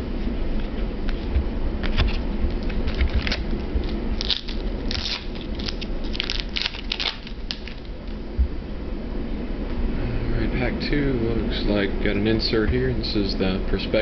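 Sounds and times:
foil wrapper crinkling: 2.6s - 8.2s.

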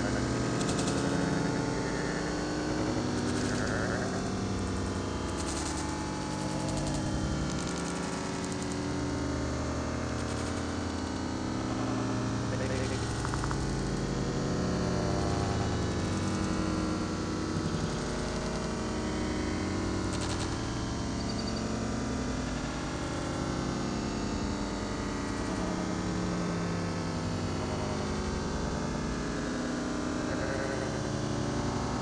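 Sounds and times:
synthesizer drone: 0.0s - 21.3s.

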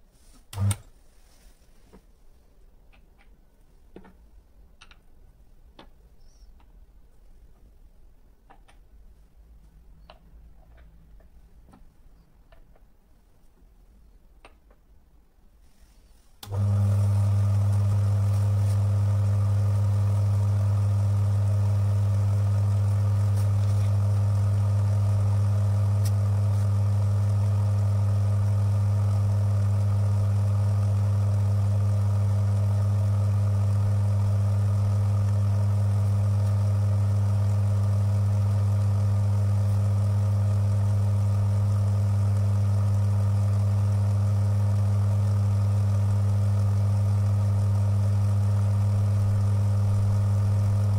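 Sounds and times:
electric motor humming: 16.4s - 50.9s.

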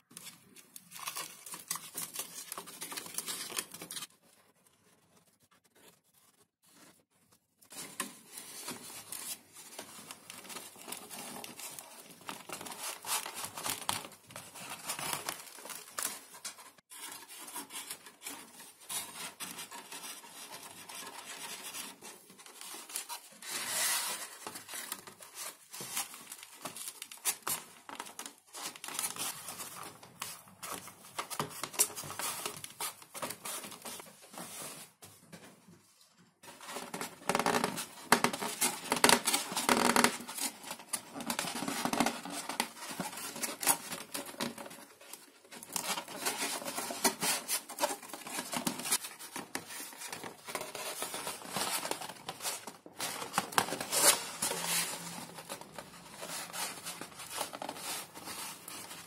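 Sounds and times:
foam sheet scratching and crinkling: 7.7s - 27.6s, 36.4s - 59.0s.

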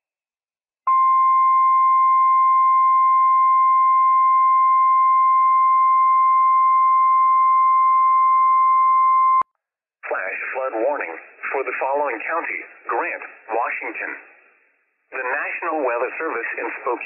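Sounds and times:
steady alarm beep: 0.9s - 9.4s.

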